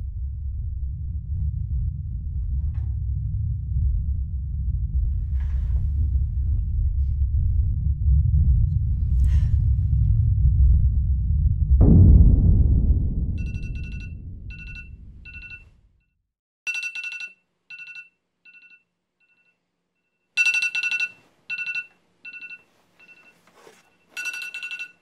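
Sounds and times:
deep rumble: 0.0 - 16.0
phone alarm beeping: 13.4 - 15.6, 17.0 - 25.0.

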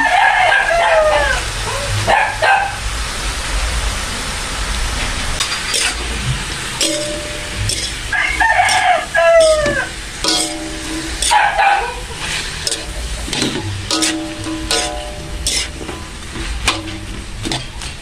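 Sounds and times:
rooster crowing: 0.0 - 2.8, 7.9 - 10.6, 11.2 - 12.2
spatula scraping metal wok: 5.4 - 18.0.

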